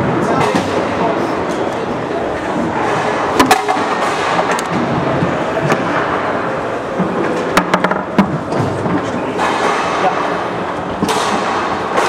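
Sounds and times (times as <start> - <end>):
hubbub of busy hall: 0.0 - 12.0
foosball clacks: 7.0 - 10.2.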